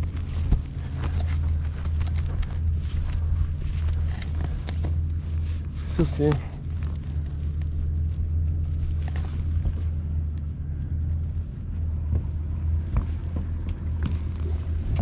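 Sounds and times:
cast net clicks and rustles: 0:00.0 - 0:11.4
outboard motors idling: 0:00.0 - 0:15.0.

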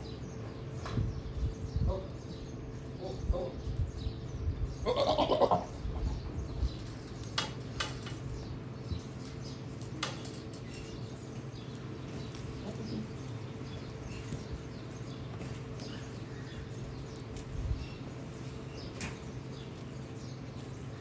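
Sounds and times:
goat bleating: 0:04.8 - 0:05.8.

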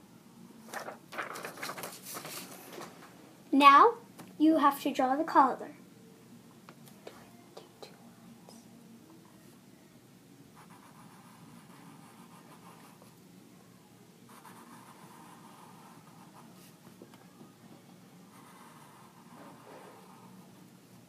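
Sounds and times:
marker scratching on paper: 0:10.6 - 0:13.1, 0:14.3 - 0:16.8, 0:18.3 - 0:20.4.

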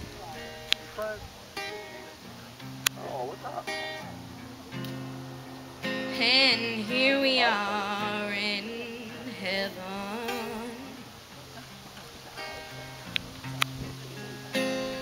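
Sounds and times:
strummed acoustic guitar: 0:00.0 - 0:15.0
woman singing with vibrato: 0:05.8 - 0:11.2.

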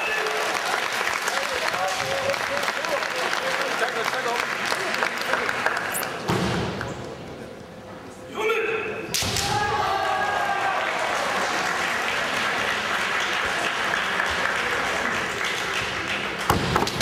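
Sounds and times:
audience applauding: 0:00.0 - 0:06.2, 0:10.0 - 0:16.5
people shouting: 0:09.4 - 0:11.0.

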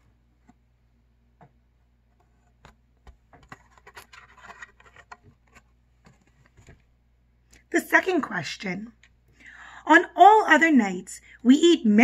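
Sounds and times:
page scraping rustle: 0:03.4 - 0:06.8.

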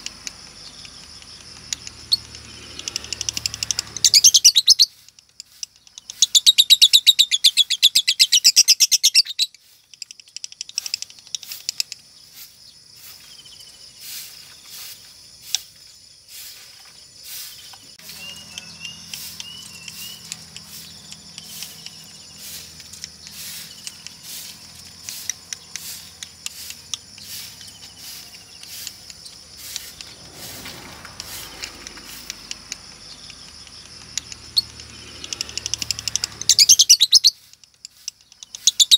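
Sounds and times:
bird clicks: 0:00.0 - 0:06.5, 0:07.3 - 0:12.1, 0:17.7 - 0:38.9
bird chattering trill: 0:00.6 - 0:12.4, 0:17.3 - 0:38.9
short high bird chirps: 0:02.0 - 0:10.0, 0:16.3 - 0:32.5, 0:34.4 - 0:38.9.

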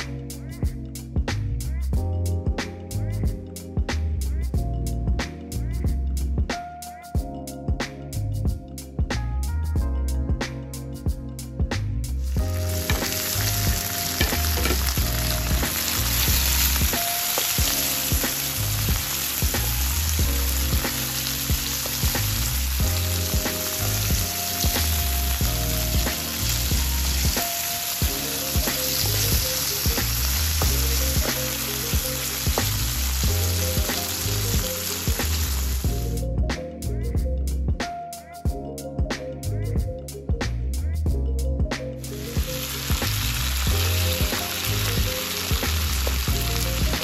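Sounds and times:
vegetables sizzling in oil: 0:12.2 - 0:36.2, 0:42.2 - 0:47.0
spatula scraping wok: 0:12.3 - 0:25.4.

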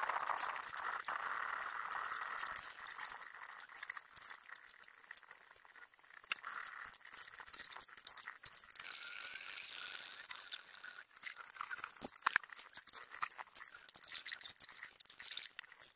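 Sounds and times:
small robots clattering: 0:06.2 - 0:15.9.

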